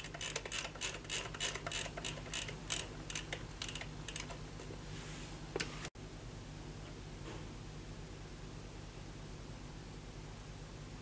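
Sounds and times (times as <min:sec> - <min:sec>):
flip clock flaps clicking: 0:00.0 - 0:04.4.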